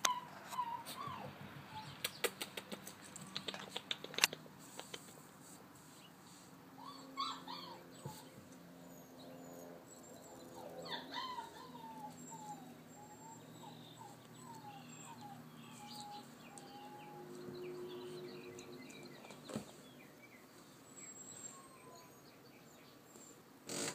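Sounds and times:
puppy whimpering: 0.0 - 2.1, 6.8 - 17.4, 21.0 - 22.3.

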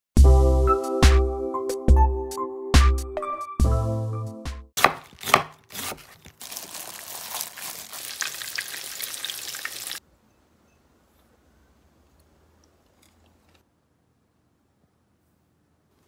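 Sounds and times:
cutlets sizzling in deep oil: 6.3 - 10.0.

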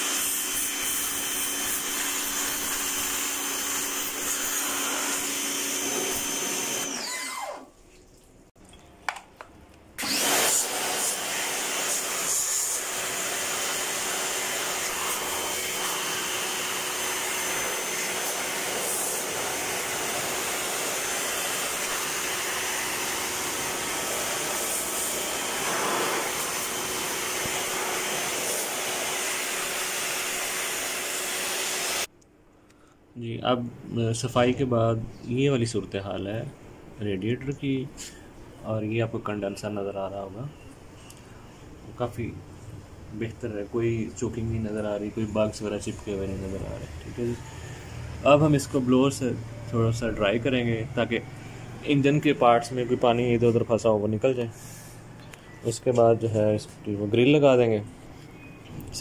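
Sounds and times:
pressure washer motor whining: 0.0 - 7.7, 10.0 - 32.1, 44.7 - 56.1
water jet spraying: 10.0 - 32.1.

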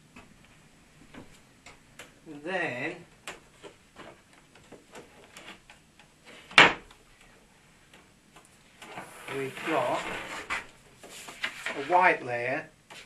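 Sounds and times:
faint clicks and rustles: 3.0 - 11.9.

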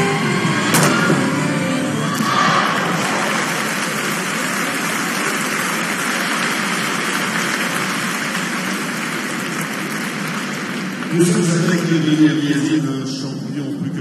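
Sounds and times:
crowd applauding: 2.0 - 12.9.

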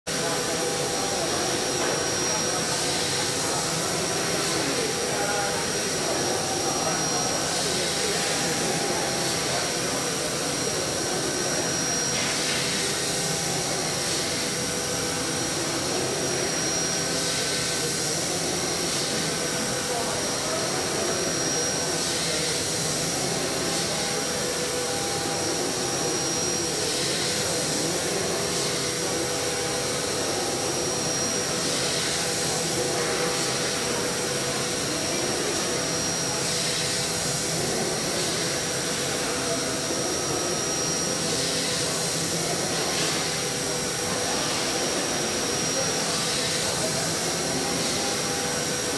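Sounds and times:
high cutter whine: 0.1 - 48.9.

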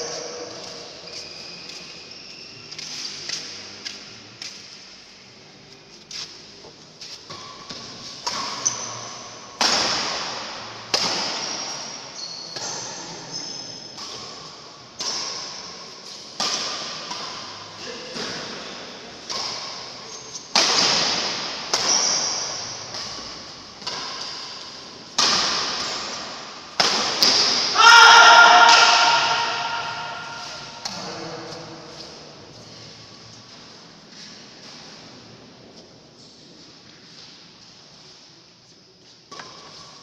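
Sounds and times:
shoes squeaking on court: 0.0 - 5.0, 5.8 - 9.5, 11.6 - 14.2, 21.7 - 24.7
racket hitting shuttlecock: 7.2 - 13.0, 13.9 - 32.2.

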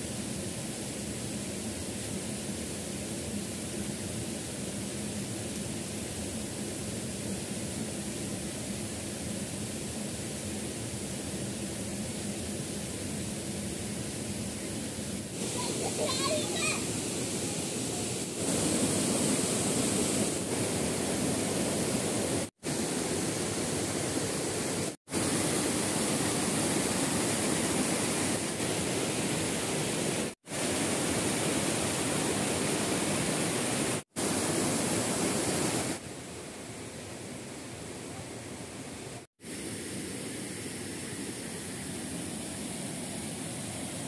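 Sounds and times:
river rushing over stones: 14.8 - 44.0.

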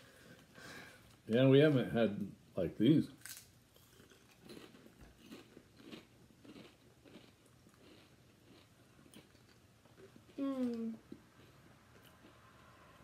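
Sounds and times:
chewing crisp potato chips: 3.0 - 12.7.

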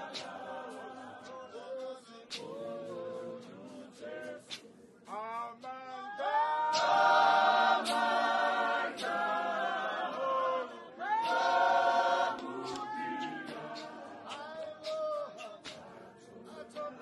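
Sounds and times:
congregation singing a hymn: 0.0 - 17.0
sharp percussive hits: 6.7 - 9.6.

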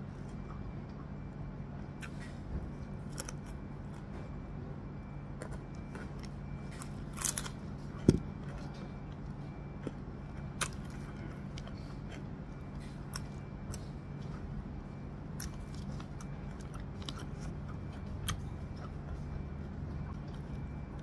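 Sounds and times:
steady low hum: 0.0 - 21.0
person chewing: 2.0 - 4.4, 5.4 - 14.6, 15.2 - 21.0
crisp crunches: 3.0 - 4.1, 5.4 - 13.9.

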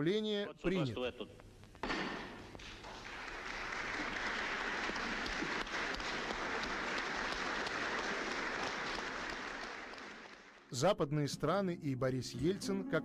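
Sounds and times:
crowd applauding: 2.6 - 10.8.

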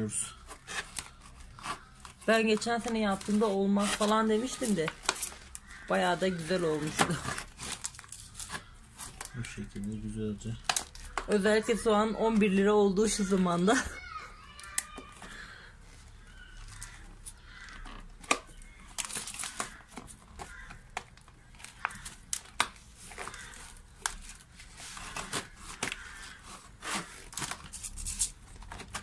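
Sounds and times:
potting soil rustling: 0.0 - 8.4
plastic bottle crinkling and clicking: 0.5 - 5.9, 6.7 - 10.0, 10.6 - 11.6, 16.6 - 29.0.

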